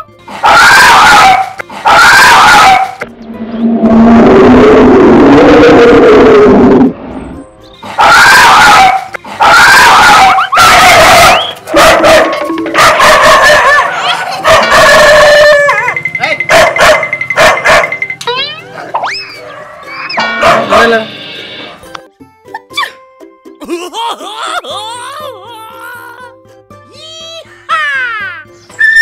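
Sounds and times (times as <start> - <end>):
dog barking: 0.4 - 3.0, 8.0 - 15.9, 16.5 - 18.0, 20.4 - 20.9
music playing: 10.5 - 29.0.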